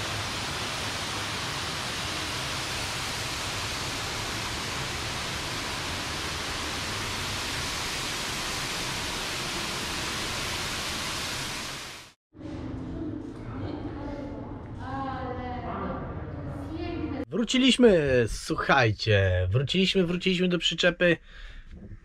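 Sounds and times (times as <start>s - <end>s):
rush of falling water: 0.0s - 12.2s.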